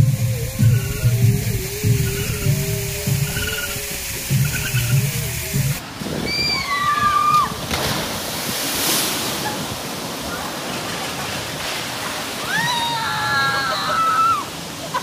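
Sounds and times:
water rushing and splashing: 0:00.0 - 0:15.0.

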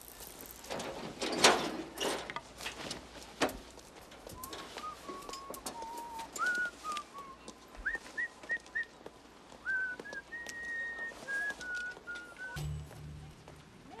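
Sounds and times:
person whistling a tune: 0:04.4 - 0:09.0, 0:09.6 - 0:12.6.

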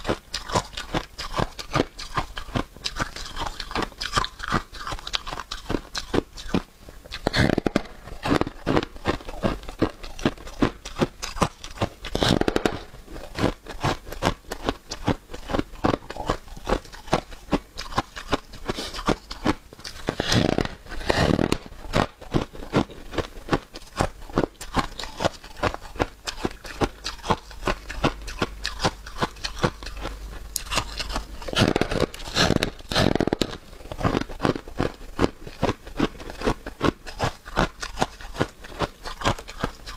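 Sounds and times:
crisp chewing crunching: 0:00.0 - 0:39.9
louder bite crunches: 0:02.9 - 0:23.3, 0:24.0 - 0:35.0.

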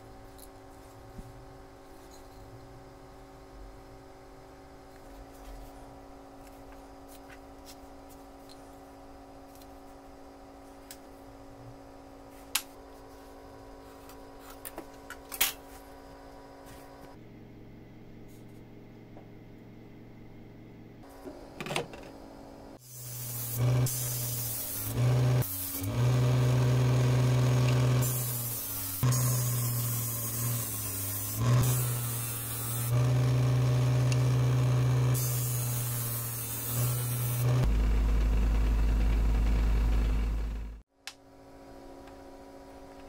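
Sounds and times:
electric disc sander humming: 0:22.8 - 0:40.8.

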